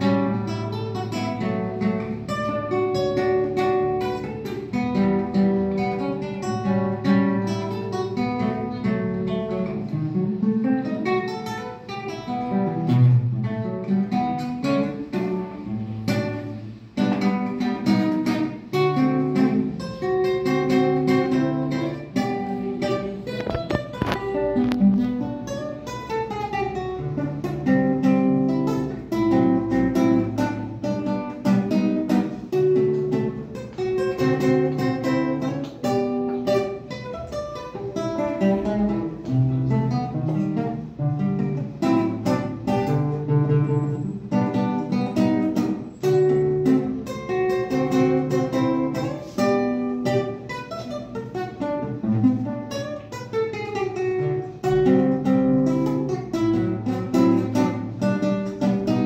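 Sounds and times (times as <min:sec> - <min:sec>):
classical guitar fingerstyle: 0:00.0 - 0:59.0.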